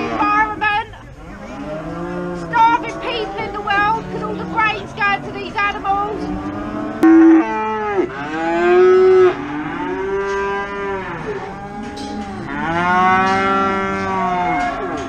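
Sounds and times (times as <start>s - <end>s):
cattle mooing: 1.2s - 5.5s, 6.1s - 15.0s.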